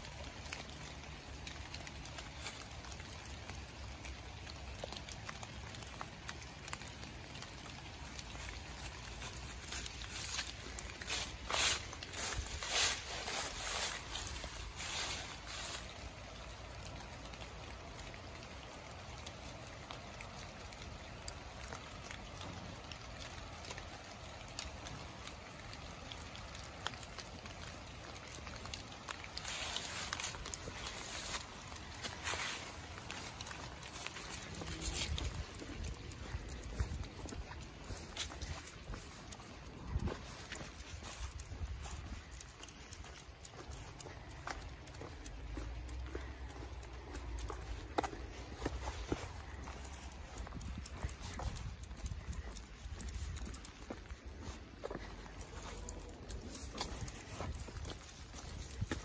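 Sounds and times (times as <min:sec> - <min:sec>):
dog stepping through dry leaves: 0:05.6 - 0:16.8, 0:27.2 - 0:59.0.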